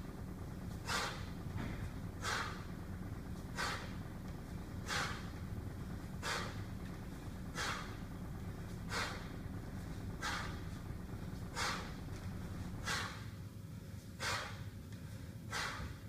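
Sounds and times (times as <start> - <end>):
low steady hum: 0.0 - 16.0
man breathing forcefully: 0.0 - 16.0.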